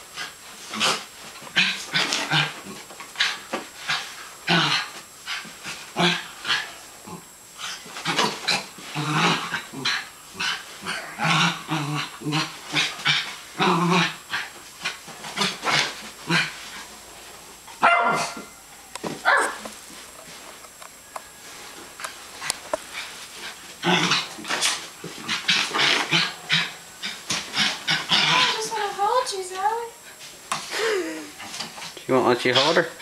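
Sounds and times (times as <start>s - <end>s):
dog play-growling: 0.0s - 18.4s, 22.0s - 29.0s
dog barking: 17.8s - 18.4s, 19.2s - 19.6s.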